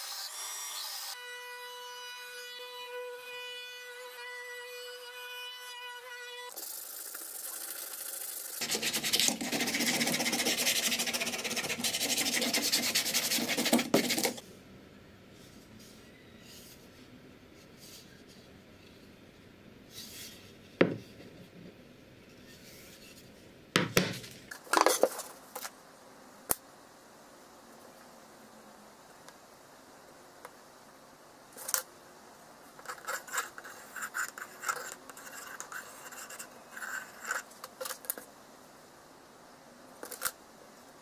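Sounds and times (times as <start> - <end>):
hand sanding wood: 8.6 - 14.4.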